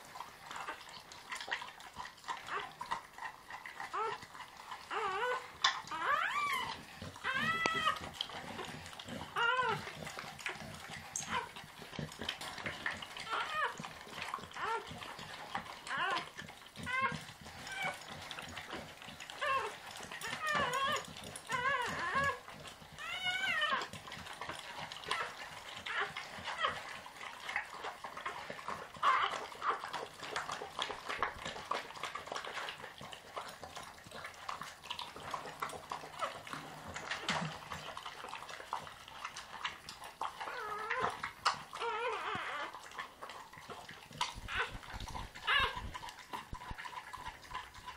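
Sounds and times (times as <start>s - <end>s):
dog licking wetly: 0.0s - 47.9s
puppy squealing: 2.4s - 11.6s, 12.6s - 23.9s, 24.7s - 30.3s, 40.3s - 43.3s, 44.2s - 47.9s.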